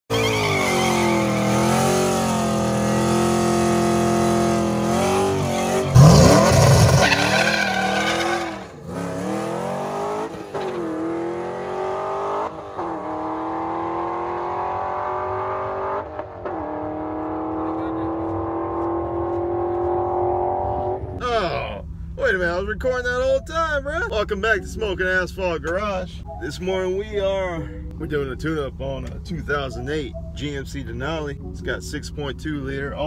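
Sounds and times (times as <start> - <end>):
car engine revving and launching: 0.1 - 21.2
car accelerating through upshifts: 0.2 - 21.2.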